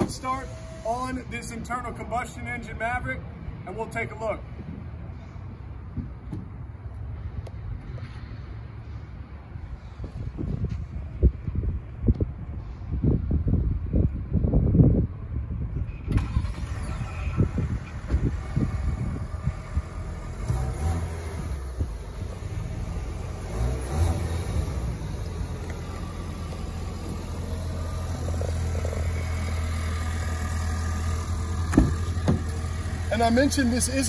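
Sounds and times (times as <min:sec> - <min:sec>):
car engine idling: 0:00.0 - 0:01.8, 0:16.1 - 0:34.0
wind buffeting microphone: 0:09.4 - 0:23.6.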